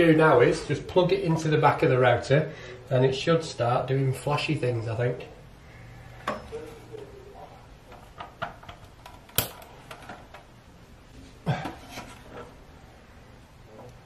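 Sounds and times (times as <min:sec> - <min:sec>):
plastic plugs clicking and knocking: 0:07.9 - 0:10.5.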